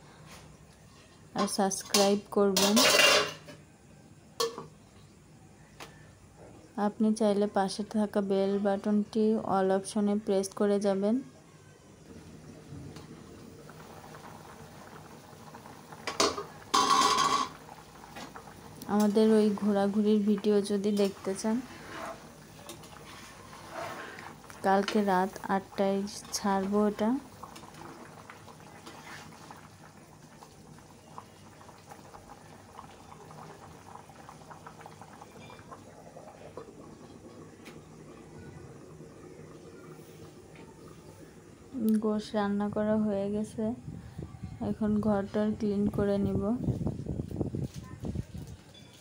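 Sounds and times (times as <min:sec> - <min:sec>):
curry bubbling in a pot: 0:12.0 - 0:42.8
crackling pops while stirring: 0:15.5 - 0:21.3, 0:22.2 - 0:25.1, 0:26.2 - 0:30.6, 0:37.5 - 0:38.1.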